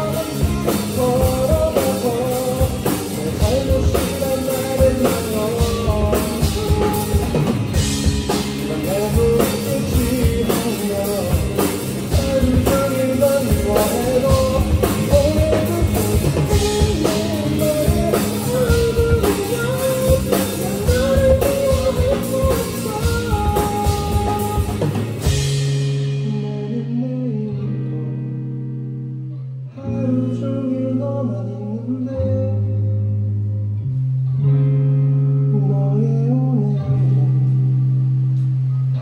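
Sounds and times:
drum kit with cymbals: 0.0s - 27.0s
electric bass: 0.0s - 39.0s
electric guitar: 0.0s - 39.0s.

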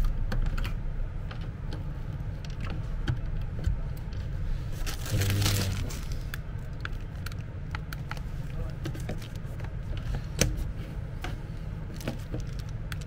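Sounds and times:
plastic wrapping rustling: 4.7s - 7.4s, 11.9s - 13.0s.

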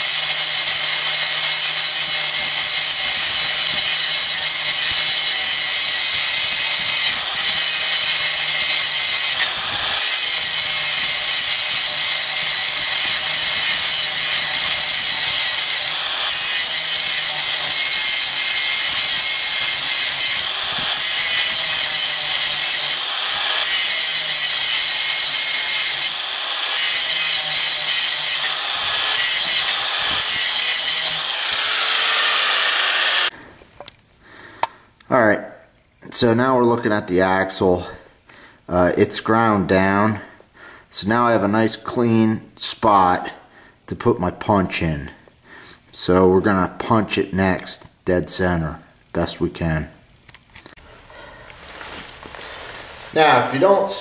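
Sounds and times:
angle grinder grinding metal: 0.0s - 33.4s.

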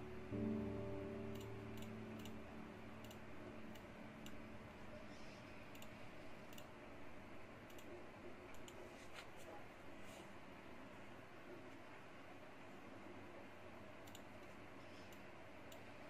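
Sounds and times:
computer mouse clicking: 1.3s - 2.4s, 3.0s - 4.4s, 5.1s - 6.8s, 7.6s - 8.8s, 14.0s - 15.9s.

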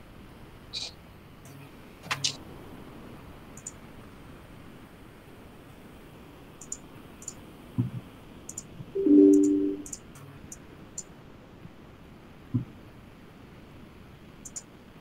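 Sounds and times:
low two-note tone: 9.0s - 9.9s
dull low thump: 12.5s - 12.7s.

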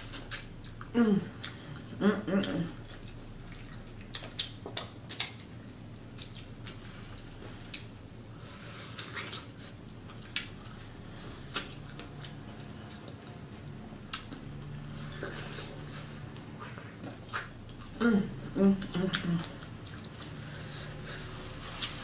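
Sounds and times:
wet chewing and squishing: 0.0s - 18.0s, 18.7s - 22.0s
mouth smacks and clicks: 4.1s - 5.4s.

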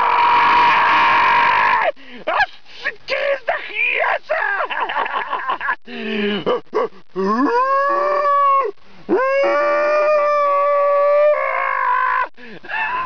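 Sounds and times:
man imitating moose call: 6.3s - 11.5s.

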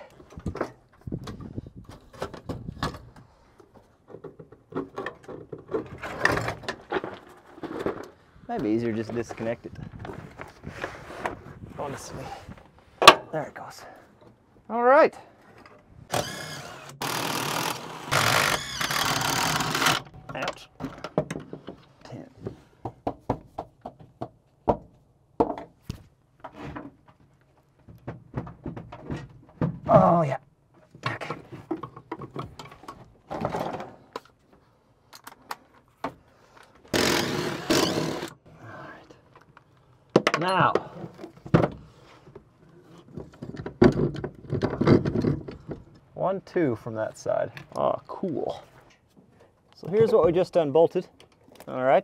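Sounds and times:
dull knocks and rattles: 0.2s - 10.5s, 18.2s - 30.0s, 30.9s - 34.0s, 43.0s - 46.1s
hand tools and metal parts clanking: 15.4s - 22.2s.

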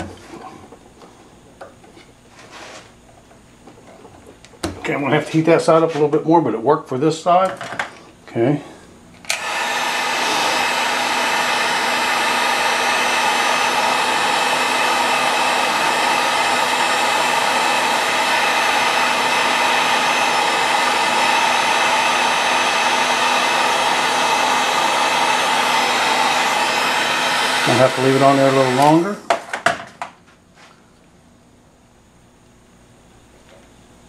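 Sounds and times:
heat gun blowing air: 9.3s - 29.2s.

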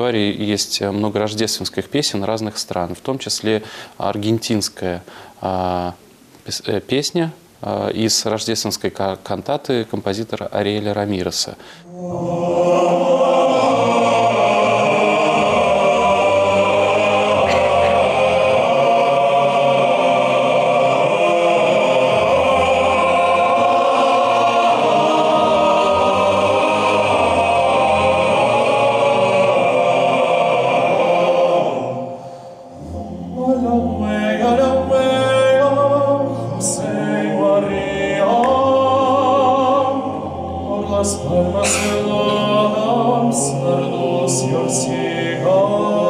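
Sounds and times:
male choir singing: 11.9s - 46.0s.

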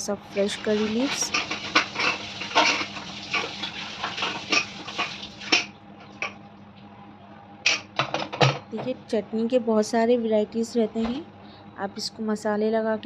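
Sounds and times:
low steady hum: 0.0s - 13.0s
utensils clinking against metal pot: 0.5s - 6.4s.

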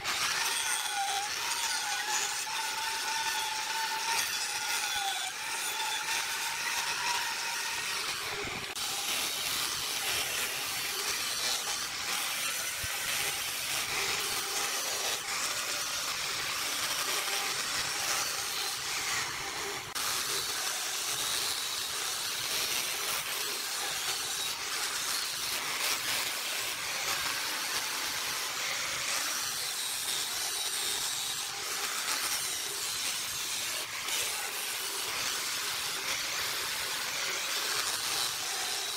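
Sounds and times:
angle grinder sanding wood: 0.0s - 38.9s.

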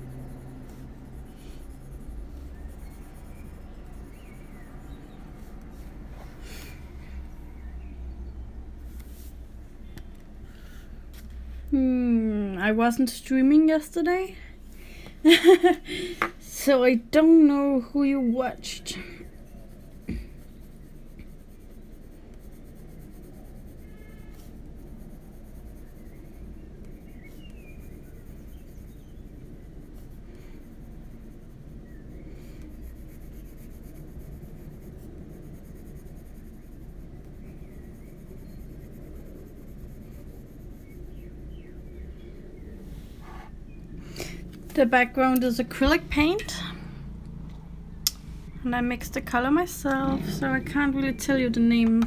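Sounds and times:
pencil scratching on paper: 0.0s - 6.0s, 18.0s - 42.4s.

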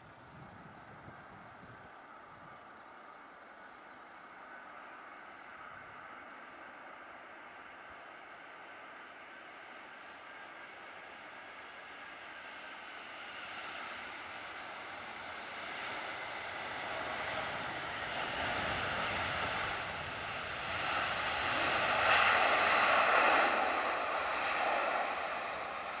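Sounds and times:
jet engines roaring: 12.7s - 26.0s.

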